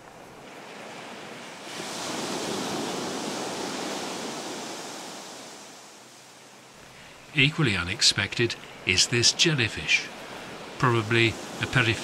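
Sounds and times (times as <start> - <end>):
sea washing onto pebble beach: 0.4 - 5.9.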